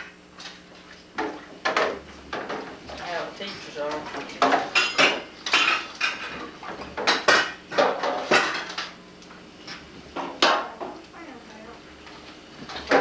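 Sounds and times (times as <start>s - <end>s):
dishes and silverware clattering: 4.1s - 8.9s.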